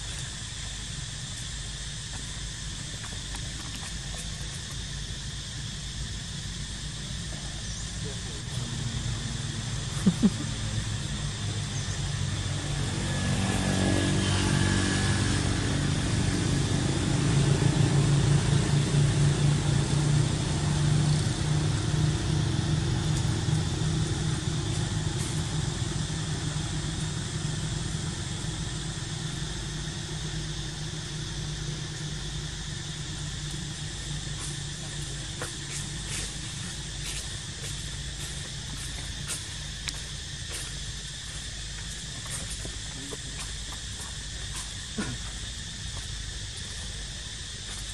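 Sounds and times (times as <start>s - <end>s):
vehicle engine passing: 8.4s - 39.6s.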